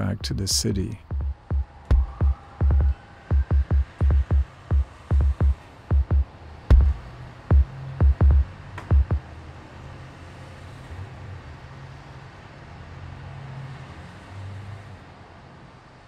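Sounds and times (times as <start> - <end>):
electronic beat: 0.0 - 9.2
street traffic rumble: 0.0 - 16.0
deep bass thumps: 1.0 - 9.2.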